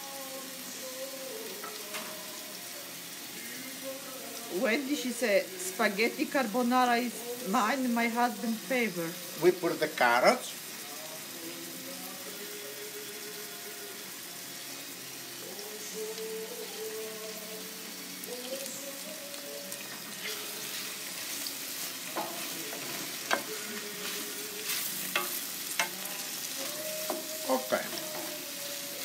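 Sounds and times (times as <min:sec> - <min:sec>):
vegetables sizzling in a pan: 0:00.0 - 0:29.0.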